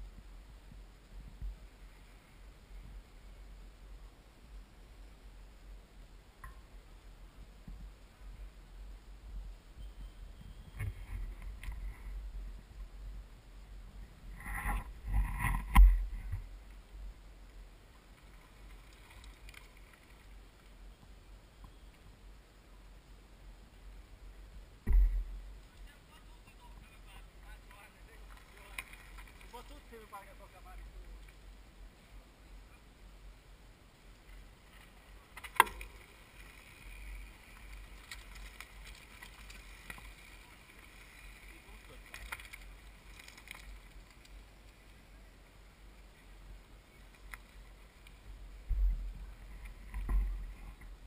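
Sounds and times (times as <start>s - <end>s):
wind rumble on microphone: 0.0s - 4.8s, 7.2s - 17.3s, 48.2s - 51.0s
faint ticks and rustle: 0.0s - 51.0s
bike tyres crunching on gravel: 27.6s - 31.5s, 34.3s - 44.9s.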